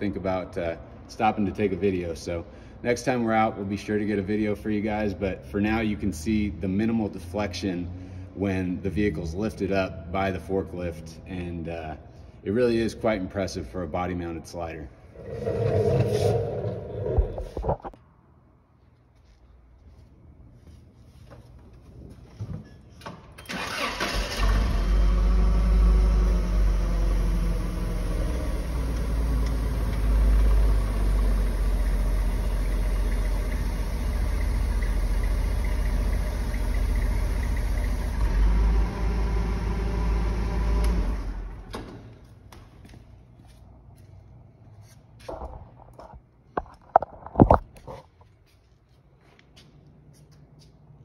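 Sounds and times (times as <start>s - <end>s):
forklift running: 23.5s - 41.8s.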